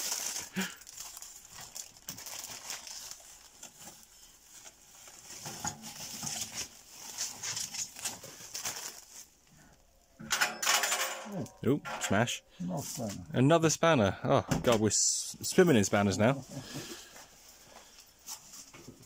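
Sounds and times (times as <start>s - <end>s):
plastic bags crinkling: 0.0s - 10.1s.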